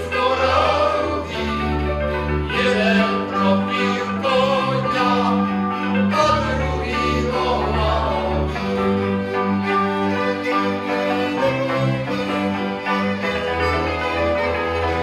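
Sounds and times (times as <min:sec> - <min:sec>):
men singing: 0:00.0 - 0:09.2, 0:10.0 - 0:13.3
folk band playing: 0:00.0 - 0:15.0.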